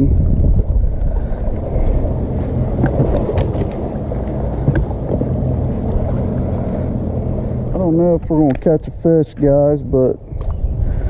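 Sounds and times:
electric trolling motor humming: 0:00.0 - 0:11.0
wind rumbling on microphone: 0:00.0 - 0:11.0.

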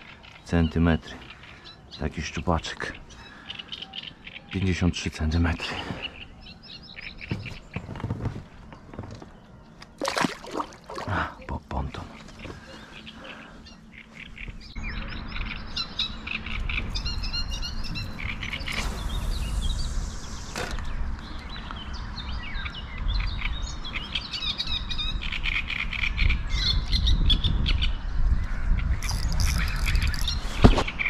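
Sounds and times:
songbirds chirping and trilling: 0:00.0 - 0:31.0
low rumble: 0:16.5 - 0:22.4.

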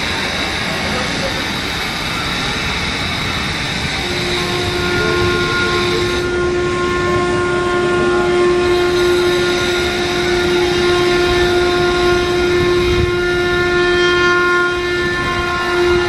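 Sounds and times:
train rumbling on rails: 0:00.0 - 0:16.0
locomotive horn blast: 0:03.6 - 0:16.0.

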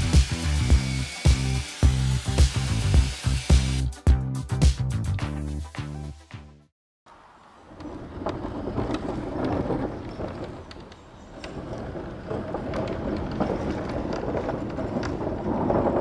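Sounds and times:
wind buffeting microphone: 0:07.7 - 0:16.0.

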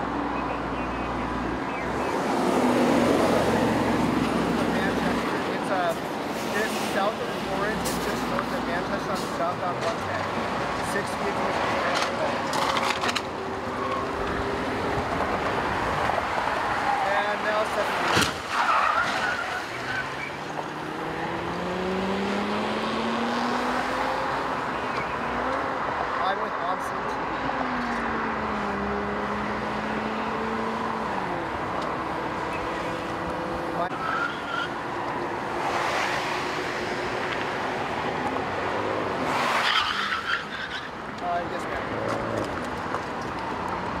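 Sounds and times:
cars passing at speed: 0:00.0 - 0:44.0
freeway traffic noise: 0:00.0 - 0:44.0
truck engine speeding up: 0:19.5 - 0:26.1.

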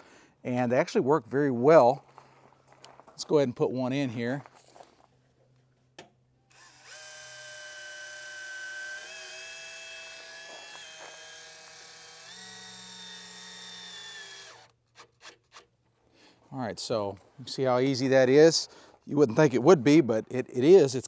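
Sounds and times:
cordless drill motor whine: 0:06.5 - 0:14.8.

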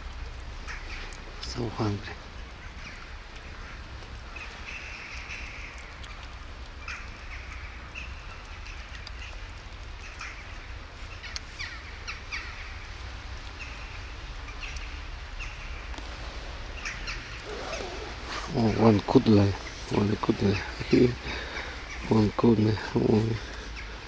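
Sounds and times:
steady low rumble: 0:14.8 - 0:24.0.

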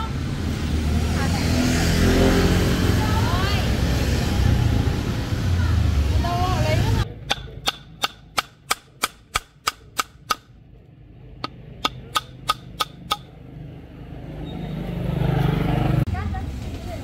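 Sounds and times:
sharp evenly spaced knocks: 0:07.1 - 0:10.6, 0:11.4 - 0:13.4.

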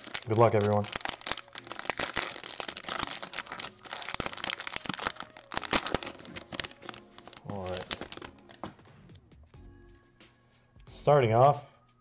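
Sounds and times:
plastic wrapper crinkling: 0:00.0 - 0:08.9.

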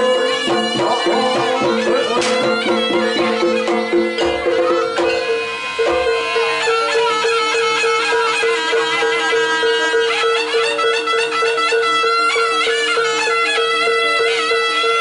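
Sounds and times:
drum thumps: 0:00.0 - 0:06.6
reedy wind melody: 0:00.0 - 0:15.0.

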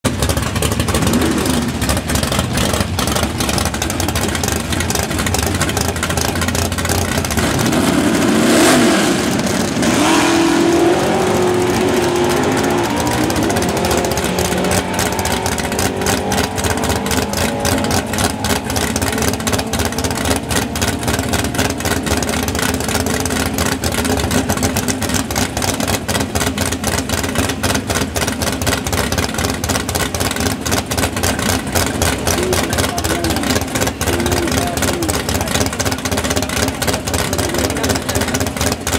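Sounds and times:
race car engine running: 0:00.0 - 0:38.9.

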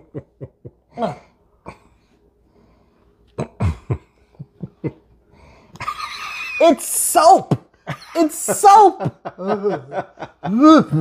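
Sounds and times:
person clearing throat: 0:03.4 - 0:04.1
person coughing: 0:03.4 - 0:04.1.

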